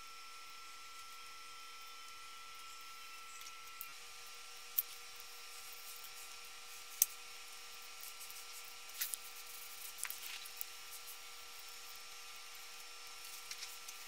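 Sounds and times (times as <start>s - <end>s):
faint steady hum: 0.0s - 14.0s
small rustles and taps: 8.0s - 11.9s.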